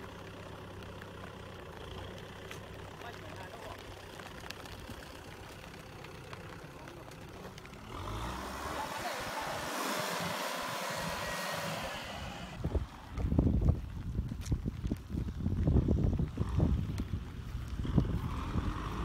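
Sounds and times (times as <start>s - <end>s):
tractor diesel engine running: 0.0s - 19.0s
wind buffeting microphone: 12.6s - 19.0s.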